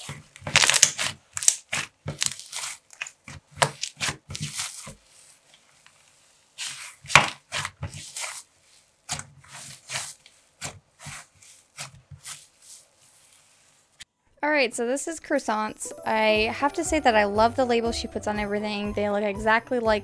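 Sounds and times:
slime squelching and popping: 0:00.0 - 0:12.5.

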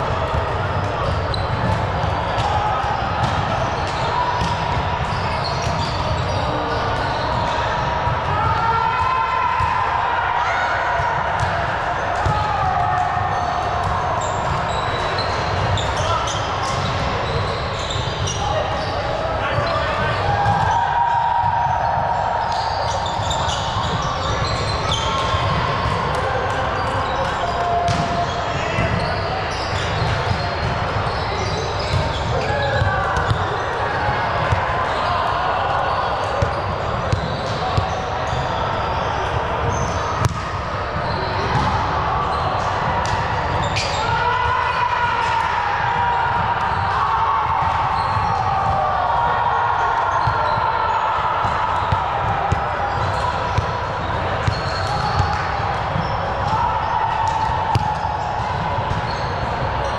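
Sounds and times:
players' voices: 0:00.0 - 0:59.9
shoe squeaks: 0:01.0 - 0:01.6, 0:05.1 - 0:07.4, 0:14.2 - 0:19.1, 0:22.4 - 0:25.3, 0:41.0 - 0:41.4, 0:43.6 - 0:44.1, 0:54.4 - 0:55.3, 0:59.0 - 0:59.9
faint high shoe squeaks: 0:59.0 - 0:59.9.

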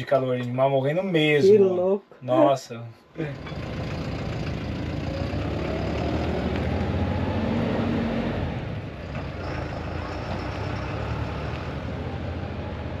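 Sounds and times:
road noise: 0:02.5 - 0:13.0
motorhome engine running: 0:03.3 - 0:13.0.

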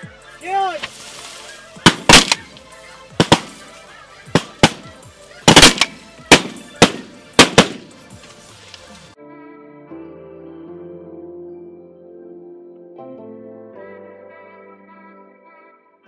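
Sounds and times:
shotgun blasts: 0:01.9 - 0:02.5, 0:03.2 - 0:03.6, 0:04.4 - 0:08.0.

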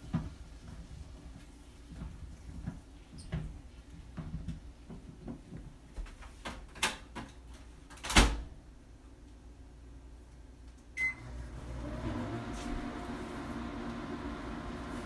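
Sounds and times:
microwave beep: 0:11.0 - 0:11.4
microwave humming: 0:11.0 - 0:15.0.

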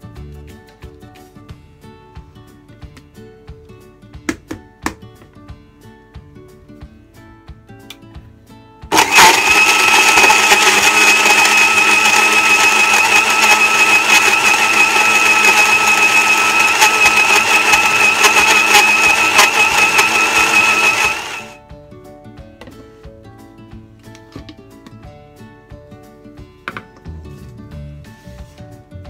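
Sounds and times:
blender motor whining: 0:08.9 - 0:21.6.

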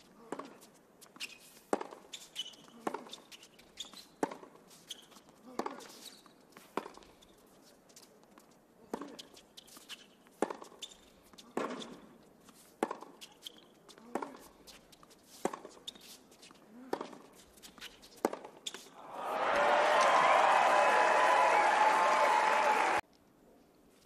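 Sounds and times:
tennis ball bouncing: 0:00.2 - 0:04.6, 0:06.6 - 0:07.2, 0:08.4 - 0:12.1, 0:12.7 - 0:18.9.

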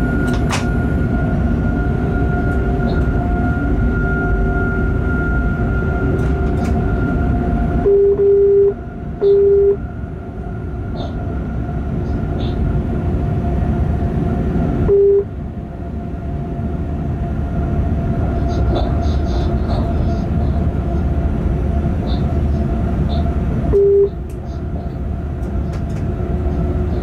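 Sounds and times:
train wheels rumbling on rails: 0:00.0 - 0:07.9, 0:09.9 - 0:27.0
steady hum: 0:06.8 - 0:10.6, 0:12.8 - 0:19.6, 0:20.2 - 0:27.0
electronic beep: 0:07.9 - 0:09.8, 0:14.9 - 0:15.3, 0:23.8 - 0:24.1
light rattling clicks: 0:25.4 - 0:26.1.

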